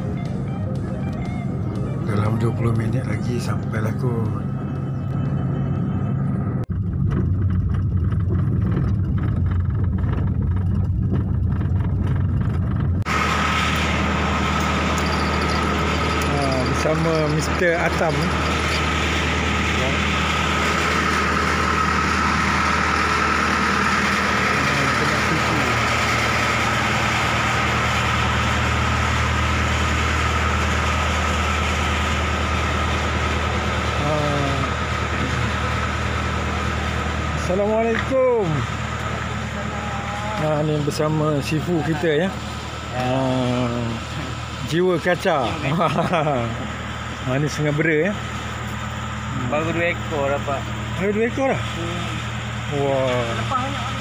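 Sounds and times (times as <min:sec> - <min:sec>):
car engine and road rumble: 0:00.0 - 0:54.0
low hum: 0:00.0 - 0:54.0
thin high tone: 0:13.6 - 0:20.1.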